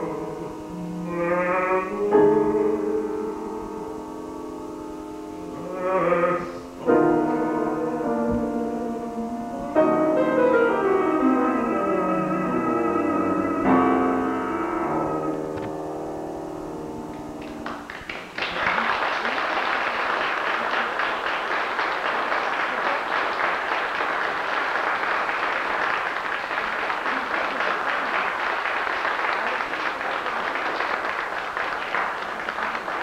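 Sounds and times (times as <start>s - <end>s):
audience applause: 17.4s - 33.0s.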